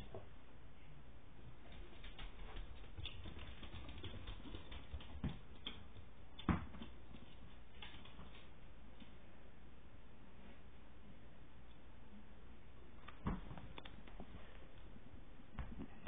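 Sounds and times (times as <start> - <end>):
dog claws clicking on wood floor: 1.7 - 7.2.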